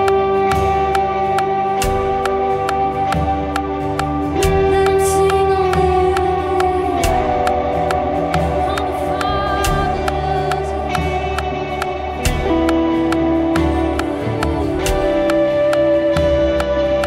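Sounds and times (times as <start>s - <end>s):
electric guitar with effects: 0.0s - 17.0s
steady beat: 0.0s - 17.0s
voices singing held notes: 4.8s - 12.4s.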